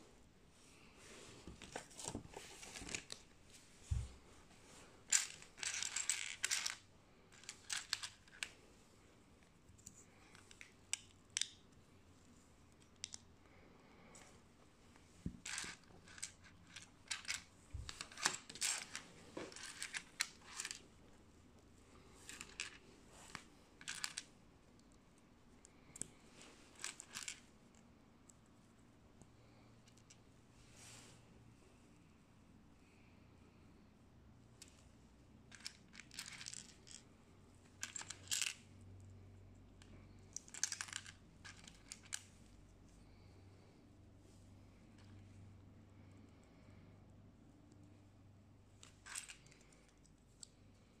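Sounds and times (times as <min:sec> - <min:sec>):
plastic bricks clicking and clattering: 0:05.1 - 0:08.5, 0:15.3 - 0:20.8, 0:22.3 - 0:24.3, 0:26.8 - 0:27.4, 0:40.3 - 0:42.3.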